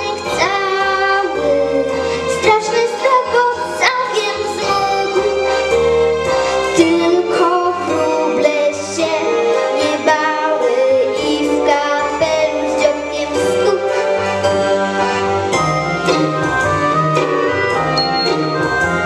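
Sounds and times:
girl singing into a microphone: 0.0s - 5.4s, 6.7s - 14.0s
backing music with bass line: 0.0s - 19.0s.

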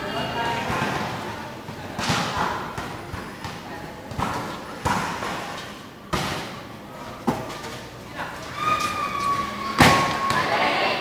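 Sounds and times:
volleyball hits echoing: 0.5s - 7.5s, 9.7s - 10.9s.

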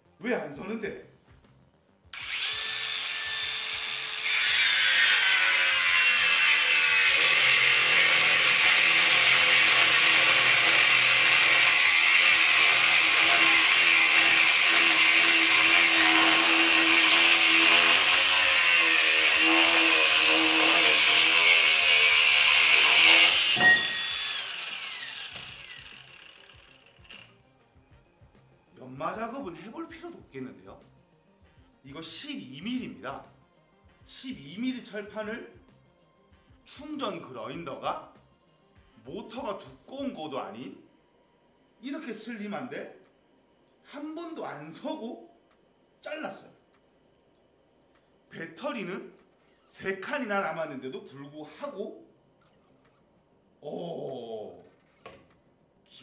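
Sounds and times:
angle grinder cutting steel: 2.2s - 27.3s.

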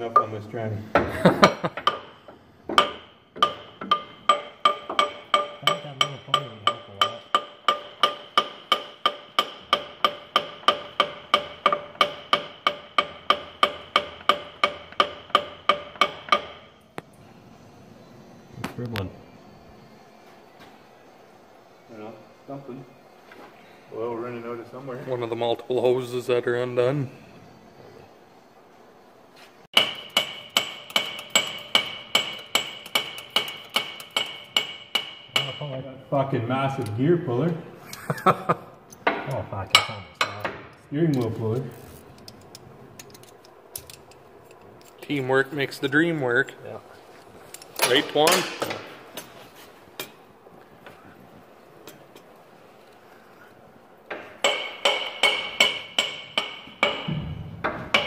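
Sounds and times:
hammer striking steel: 1.4s - 16.8s, 29.8s - 35.8s, 39.0s - 40.6s, 47.7s - 49.3s, 54.1s - 58.0s.

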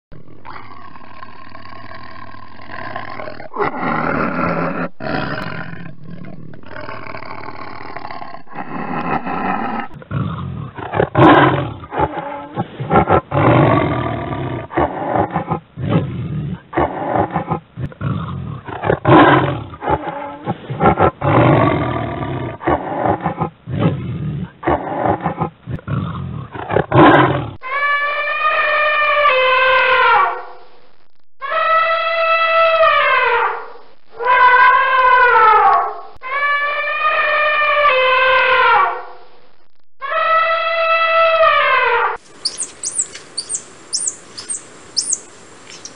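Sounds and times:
tiger roaring and growling: 0.1s - 27.9s
elephant trumpeting: 40.1s - 45.9s.

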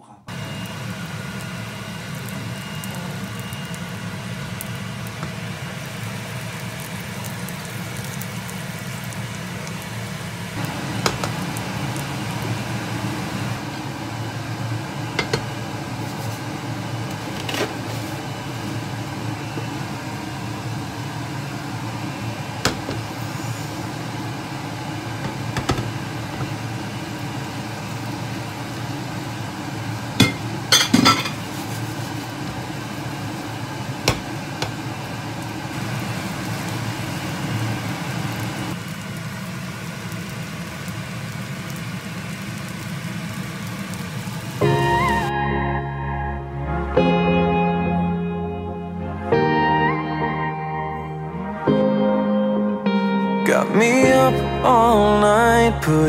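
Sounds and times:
low whirring hum: 0.0s - 49.5s
frying pan knocking on cooktop: 11.0s - 11.4s, 15.2s - 15.6s, 22.6s - 23.1s, 25.2s - 26.6s, 30.2s - 31.4s, 34.0s - 34.8s.

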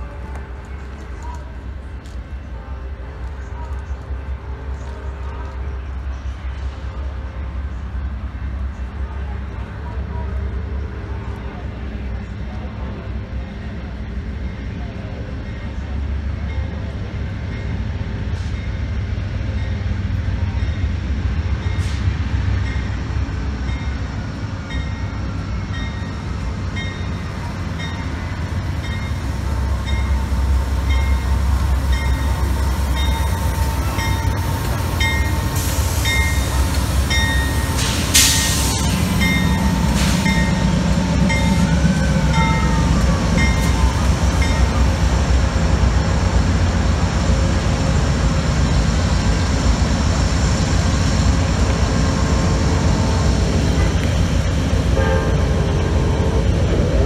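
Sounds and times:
diesel locomotive engines rumbling: 0.0s - 57.0s
train bell ringing: 23.6s - 37.9s, 38.9s - 45.0s
air hiss: 35.4s - 39.2s.

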